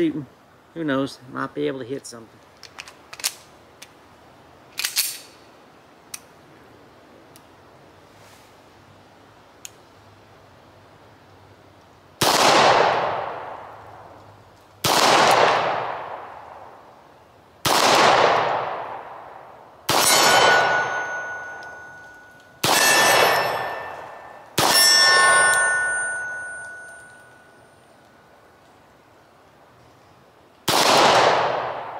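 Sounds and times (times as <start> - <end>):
pistol shots echoing: 12.2 - 13.6, 14.8 - 16.4, 17.6 - 19.2, 19.9 - 27.2, 30.7 - 31.9
steel target ringing: 19.9 - 27.7.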